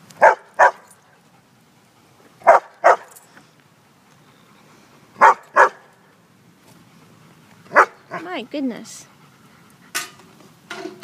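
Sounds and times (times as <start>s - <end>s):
dog barking: 0.2s - 0.8s, 2.4s - 3.1s, 5.2s - 5.8s, 7.7s - 8.2s.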